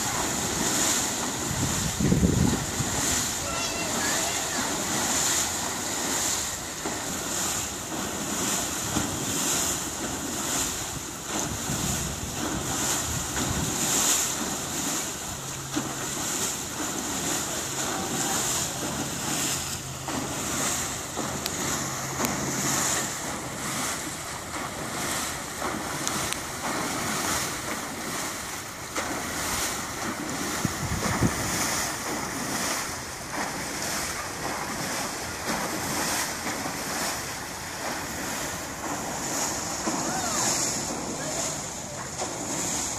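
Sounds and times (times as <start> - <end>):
wind on microphone: 0.0 - 5.3, 10.4 - 14.5, 29.4 - 32.8
propeller churning and splashing water: 0.0 - 42.9.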